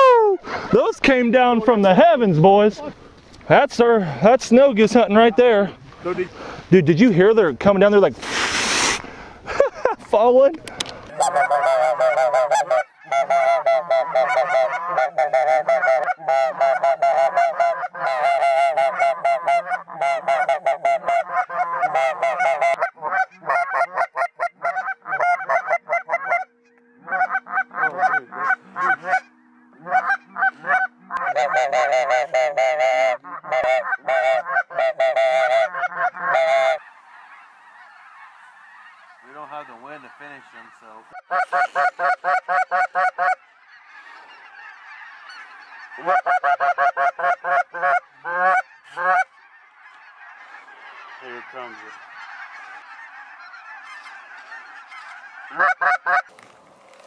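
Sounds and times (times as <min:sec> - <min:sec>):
geese honking: 0:00.0 - 0:57.0
faint hiss: 0:08.1 - 0:09.4.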